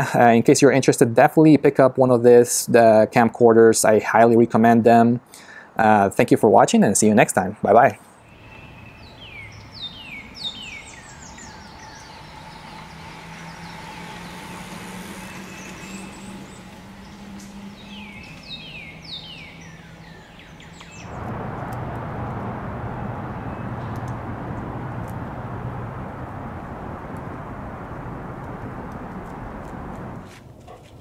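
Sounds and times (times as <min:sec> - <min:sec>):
songbird whistled calls: 0:08.3 - 0:14.5, 0:15.5 - 0:21.2
steady rushing noise: 0:20.9 - 0:30.6
faint low steady hum: 0:21.0 - 0:30.8.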